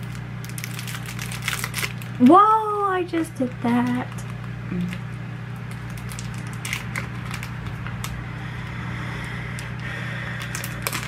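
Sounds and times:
small clicks and crackles: 0:00.0 - 0:02.4, 0:03.1 - 0:08.2, 0:10.4 - 0:11.0
low electrical hum: 0:00.0 - 0:11.0.

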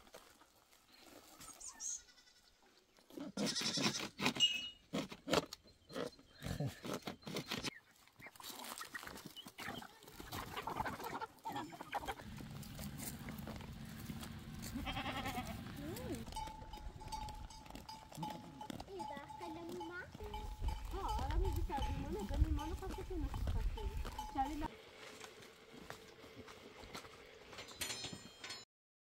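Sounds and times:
goat herd: 0:00.0 - 0:28.6
goat bleating: 0:01.6 - 0:04.3, 0:09.6 - 0:24.7.

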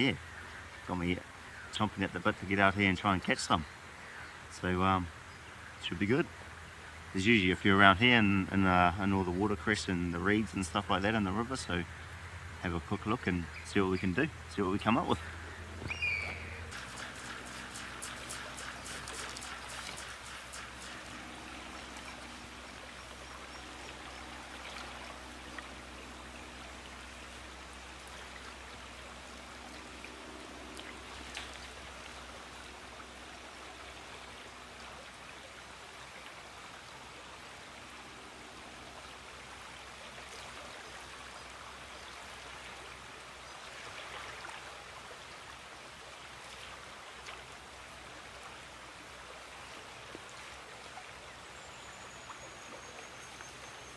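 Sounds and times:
river water rushing: 0:10.8 - 0:53.9.

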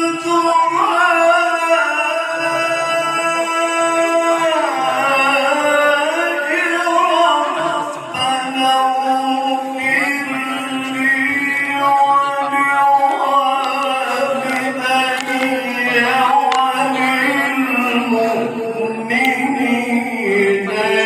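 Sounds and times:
man reciting melodically into microphone: 0:00.0 - 0:21.0.

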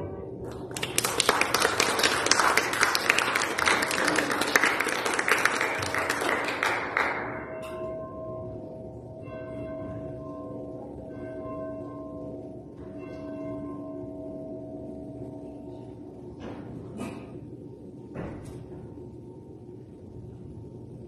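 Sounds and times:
crowd applauding: 0:00.5 - 0:07.4.

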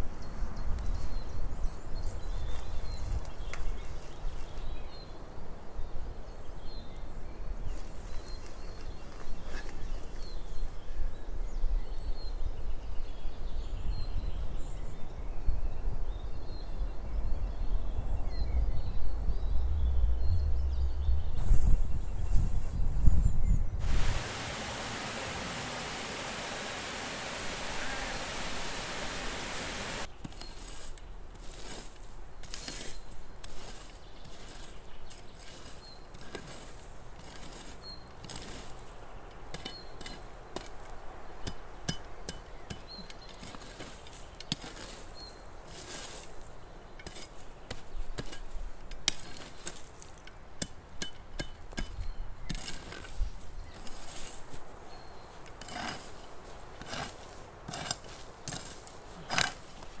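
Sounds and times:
steady hiss: 0:23.8 - 0:30.1.

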